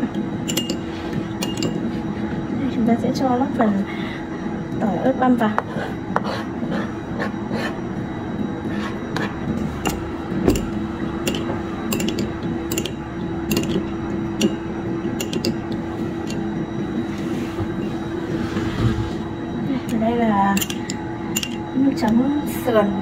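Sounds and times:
steady low hum: 0:00.0 - 0:23.0
metal spoon clinking on ceramic bowl: 0:00.5 - 0:00.8, 0:01.4 - 0:01.8, 0:11.2 - 0:14.6, 0:15.2 - 0:15.6, 0:20.6 - 0:21.6.

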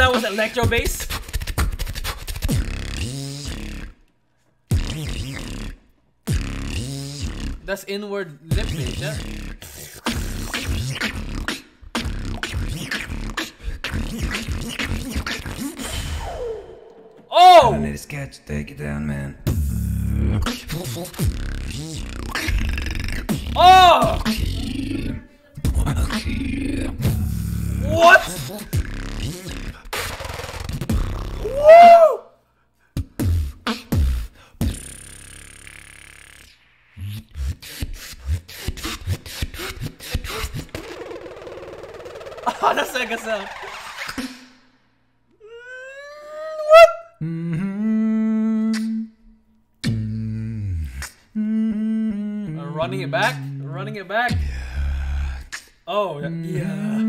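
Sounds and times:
beatbox kick and snare hits: 0:00.0 - 0:04.1, 0:04.7 - 0:07.7, 0:08.5 - 0:17.3, 0:19.4 - 0:24.9, 0:25.6 - 0:32.1, 0:32.9 - 0:42.7, 0:43.9 - 0:44.6, 0:49.8 - 0:50.2, 0:50.8 - 0:51.3, 0:54.3 - 0:55.8
beatbox lip bass: 0:00.0 - 0:04.1, 0:04.7 - 0:07.8, 0:08.5 - 0:18.0, 0:19.3 - 0:32.0, 0:32.8 - 0:44.6, 0:47.1 - 0:57.0.

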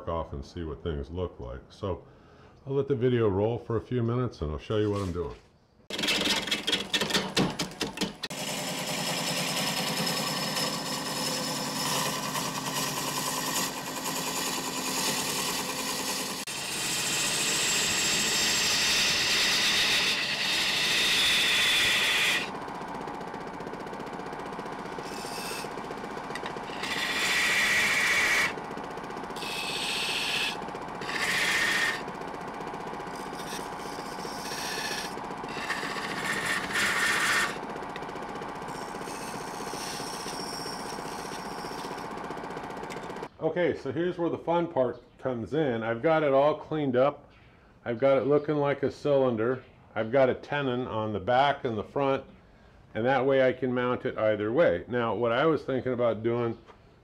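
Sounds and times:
gouge cutting log on wood lathe: 0:05.9 - 0:43.3.

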